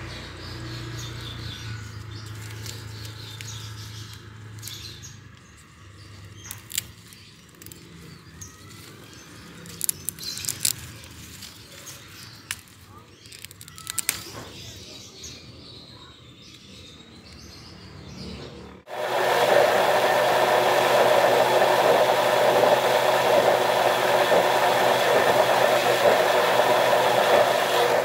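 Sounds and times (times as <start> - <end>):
sharp cracks of leaves: 2.0 - 4.8, 6.3 - 14.8
leaves rustling and snapping: 2.2 - 4.8, 6.4 - 14.8.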